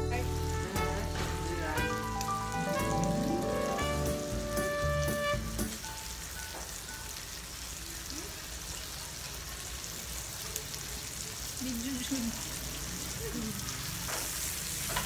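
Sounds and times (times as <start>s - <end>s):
background music: 0.0s - 7.1s
meat sizzling on a grill pan: 0.0s - 15.0s.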